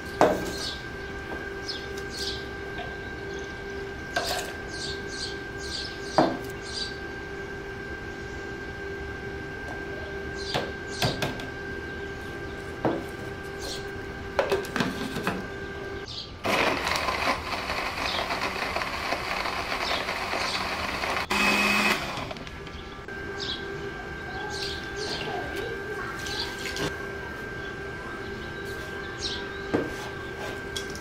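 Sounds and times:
electric blender running: 0:00.0 - 0:31.0.

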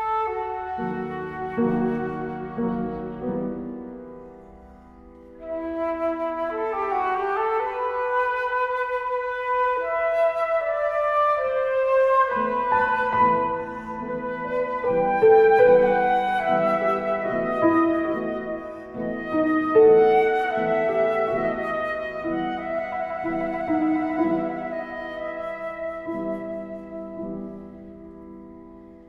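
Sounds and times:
flute long held notes: 0:00.0 - 0:28.8
piano chords: 0:00.0 - 0:29.0.

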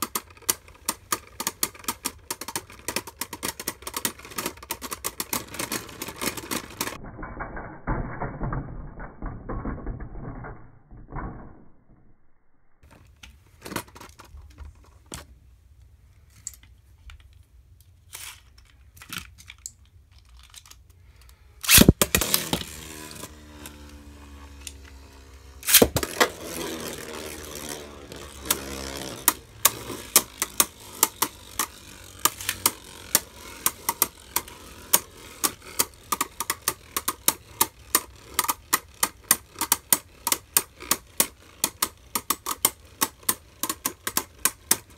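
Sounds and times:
spinning tops in plastic stadium: 0:00.0 - 0:12.2, 0:21.6 - 0:44.9
spinning tops clattering: 0:21.6 - 0:44.9
spinning tops clicking together: 0:21.6 - 0:44.9.

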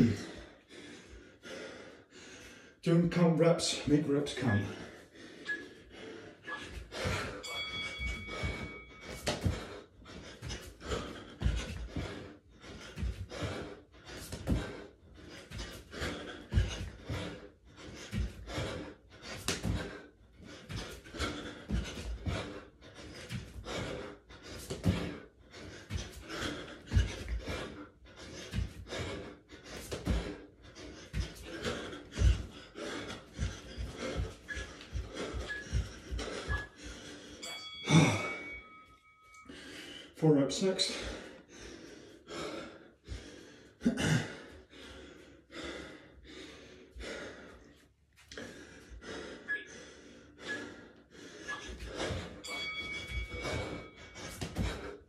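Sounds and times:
man panting hard: 0:00.0 - 0:55.0
feet thumping on floor: 0:06.7 - 0:09.8, 0:19.3 - 0:20.0, 0:24.5 - 0:25.2, 0:25.8 - 0:27.7, 0:29.8 - 0:30.4, 0:31.1 - 0:36.8, 0:53.0 - 0:54.9.

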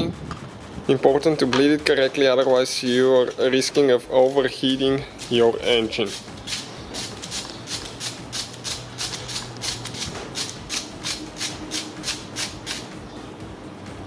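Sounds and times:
ratchet wrench clicking: 0:06.0 - 0:12.9.

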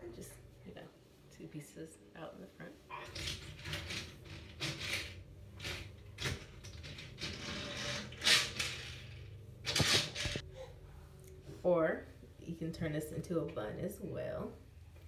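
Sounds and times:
braids rustling and swishing: 0:03.1 - 0:10.4.

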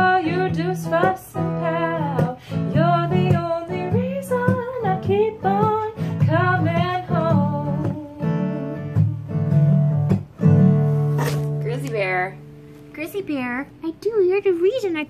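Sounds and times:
woman singing: 0:00.0 - 0:09.3
acoustic guitar strumming: 0:00.0 - 0:15.0.

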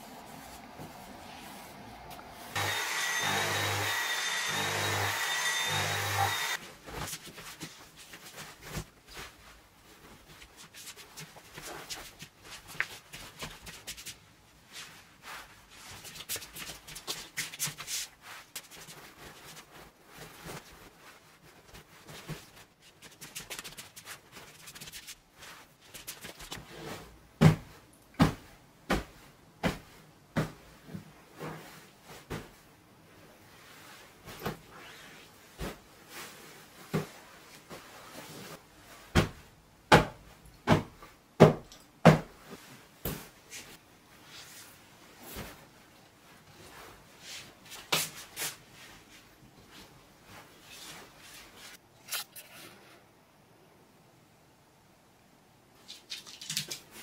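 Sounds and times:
bedding rustling: 0:06.6 - 0:41.1, 0:42.2 - 0:51.8.

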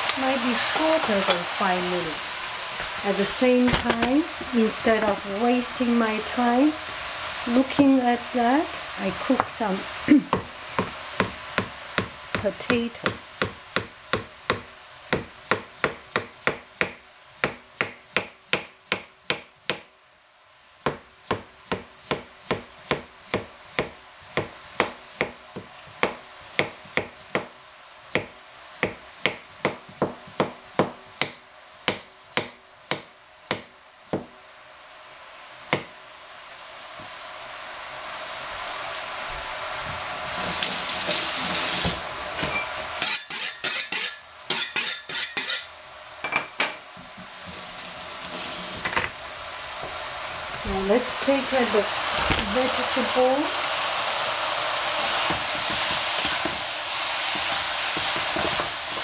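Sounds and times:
knife chopping on wooden board: 0:10.3 - 0:19.9, 0:20.9 - 0:27.5, 0:28.2 - 0:34.3
hiss: 0:36.6 - 0:42.0, 0:51.0 - 0:59.0.

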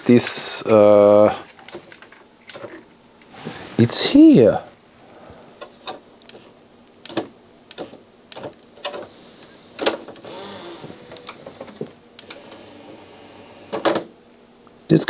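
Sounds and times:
small motor whirring: 0:10.2 - 0:13.8.

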